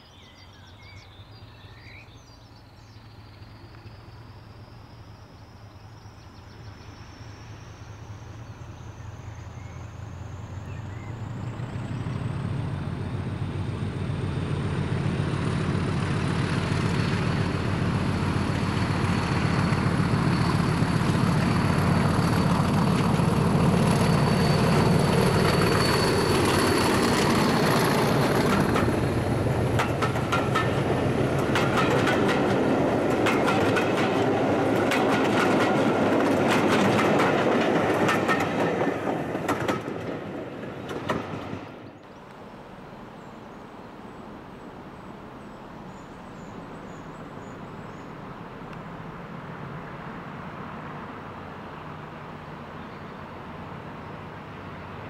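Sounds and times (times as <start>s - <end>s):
diesel locomotive engine: 0.0s - 55.0s
train wheels clattering: 15.0s - 41.8s.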